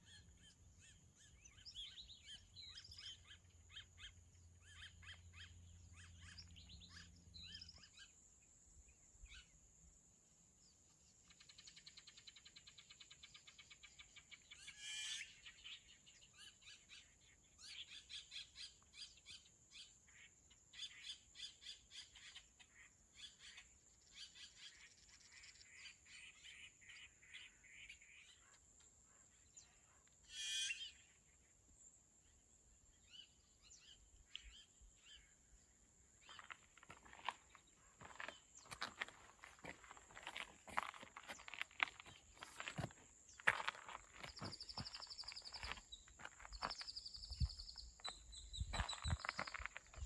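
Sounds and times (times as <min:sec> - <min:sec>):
birds chirping in trills: 0:00.0 - 0:08.2, 0:11.2 - 0:31.6, 0:32.2 - 0:50.0
loud bird calls: 0:00.0 - 0:08.2, 0:11.3 - 0:31.4, 0:36.2 - 0:50.0
footsteps on trail: 0:36.2 - 0:50.0.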